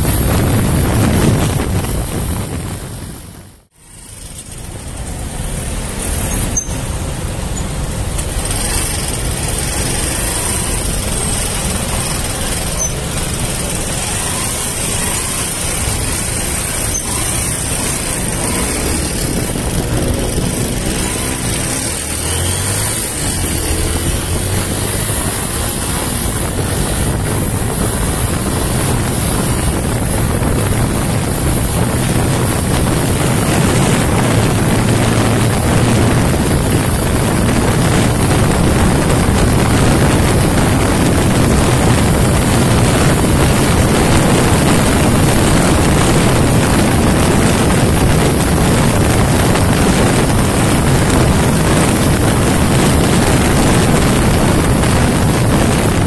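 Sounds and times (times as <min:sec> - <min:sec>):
motorcycle engine running: 0:00.0 - 0:56.0
wind rushing on microphone: 0:00.0 - 0:56.0.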